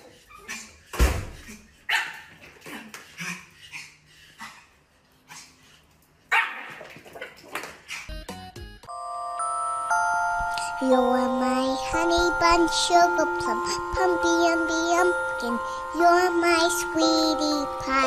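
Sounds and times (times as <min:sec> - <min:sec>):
small dog barking: 0:01.9 - 0:02.3, 0:06.3 - 0:06.8.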